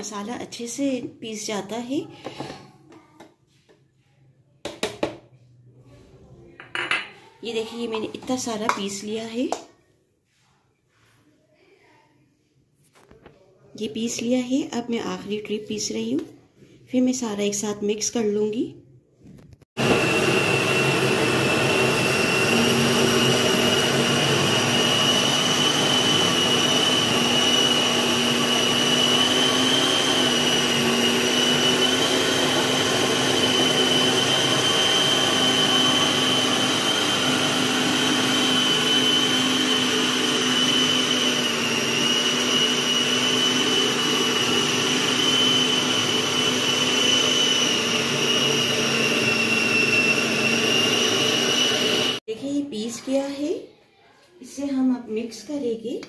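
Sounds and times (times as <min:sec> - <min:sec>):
blade grinding wet meat mixture: 0:19.8 - 0:52.2
food processor motor whine: 0:19.8 - 0:52.2.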